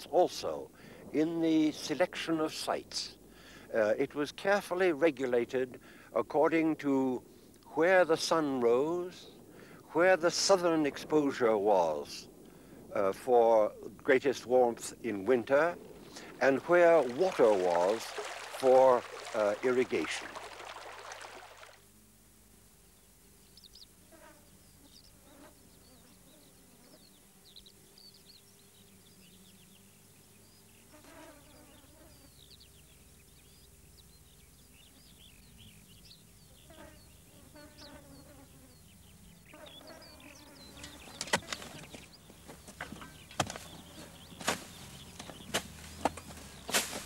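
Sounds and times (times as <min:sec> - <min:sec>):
buzzing insects: 0:10.4 - 0:47.0.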